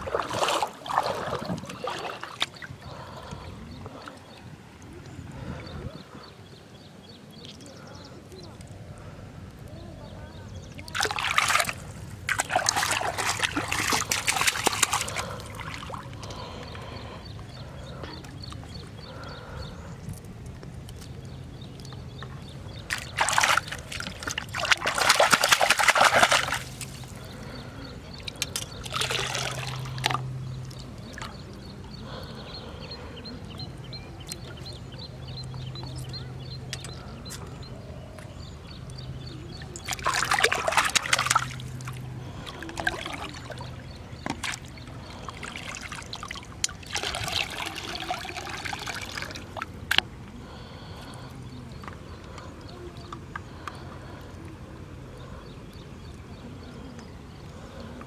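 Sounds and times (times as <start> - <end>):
water poured into river: 0.0 - 2.6, 10.8 - 16.2, 22.9 - 27.2, 28.4 - 30.3, 39.8 - 50.7
river water splashing: 0.0 - 6.2, 10.7 - 19.4, 21.4 - 37.2, 38.3 - 58.0.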